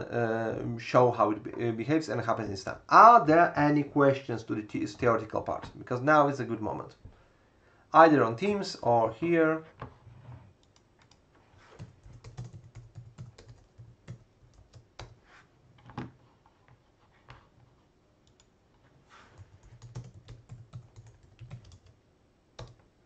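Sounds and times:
typing on computer keyboard: 0:11.8 - 0:15.2, 0:19.3 - 0:22.0, 0:22.6 - 0:22.9.

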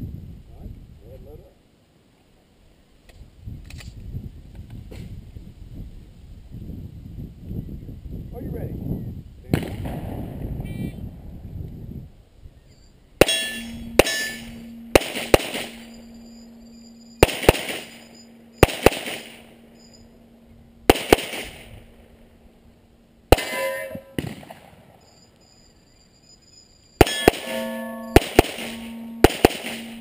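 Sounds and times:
steel targets ringing: 0:13.2 - 0:22.5, 0:23.3 - 0:24.5, 0:27.0 - 0:30.0
handgun shots: 0:15.0 - 0:15.8, 0:17.2 - 0:18.0, 0:18.6 - 0:19.4, 0:20.9 - 0:21.7, 0:23.3 - 0:24.6, 0:27.0 - 0:30.0.

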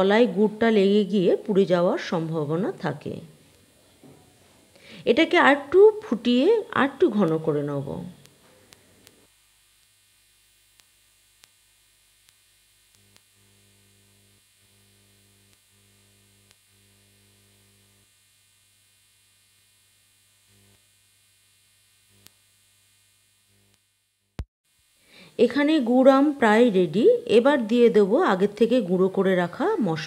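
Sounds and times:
faint electrical hum: 0:00.0 - 0:23.8, 0:24.7 - 0:30.0.

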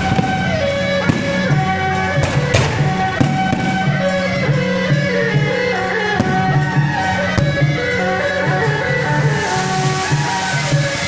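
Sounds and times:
sharp cracks: 0:00.0 - 0:04.2
guitar music with drum beat: 0:00.0 - 0:11.0.

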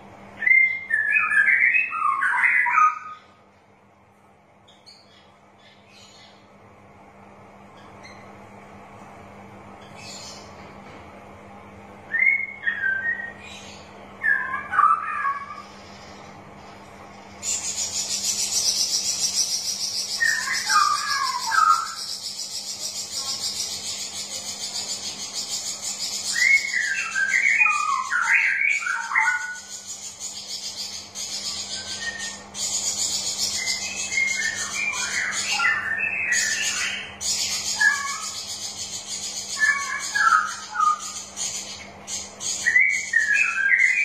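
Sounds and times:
bird warbling song: 0:00.0 - 0:03.4, 0:04.6 - 0:06.6, 0:09.8 - 0:10.7, 0:12.1 - 0:16.3, 0:17.2 - 0:44.0
high pulsing hiss: 0:15.4 - 0:27.4.

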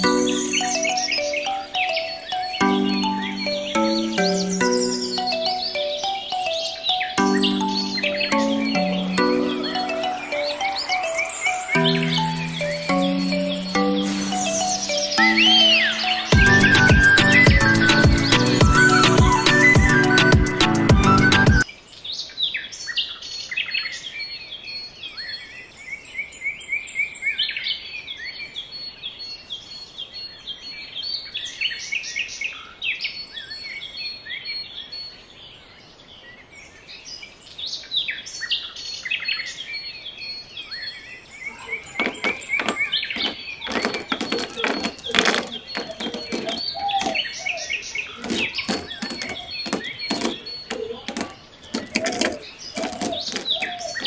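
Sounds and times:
small birds chirping: 0:00.0 - 0:54.0
pebbles clattering into plastic basin: 0:42.0 - 0:47.2, 0:48.2 - 0:54.0.

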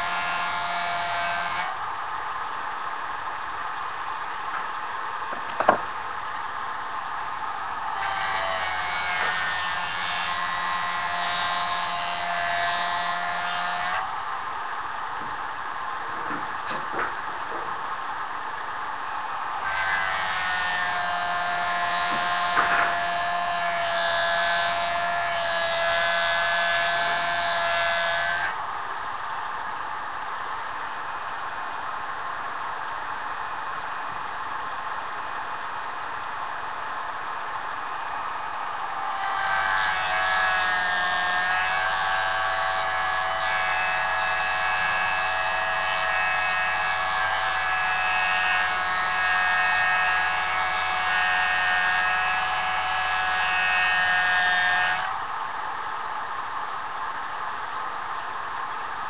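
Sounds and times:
sharpening machine grinding whine: 0:00.0 - 0:01.8, 0:07.6 - 0:14.4, 0:19.1 - 0:28.7, 0:37.8 - 0:55.2.

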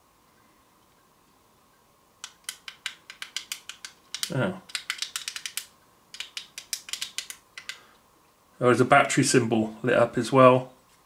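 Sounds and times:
plastic keypad buttons clicking: 0:02.2 - 0:07.8.

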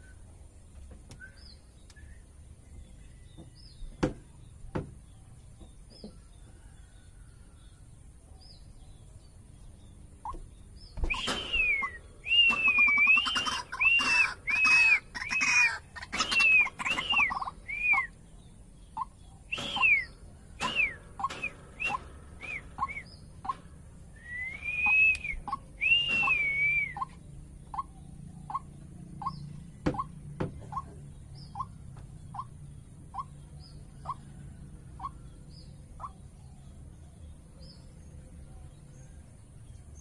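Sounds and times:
waterhen whistling calls: 0:11.0 - 0:18.2, 0:19.0 - 0:23.2, 0:24.2 - 0:27.9.

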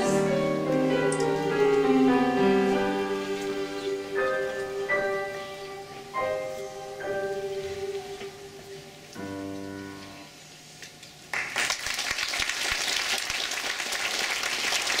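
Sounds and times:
choir singing: 0:00.0 - 0:09.4
piano chords: 0:00.0 - 0:10.6
audience applause: 0:11.3 - 0:15.0.

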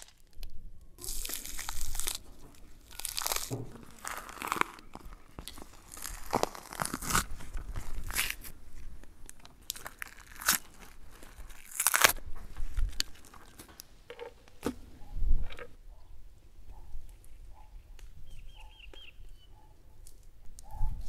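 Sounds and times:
hands tearing fat: 0:00.0 - 0:13.7.

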